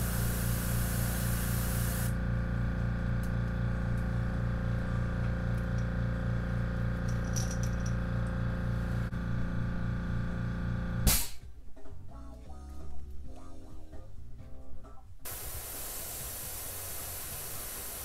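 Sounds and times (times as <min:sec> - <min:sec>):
compressor stopping with loud burst: 0:00.0 - 0:02.7, 0:15.3 - 0:18.0
air compressor pulsing hum: 0:00.0 - 0:11.4, 0:15.3 - 0:18.0.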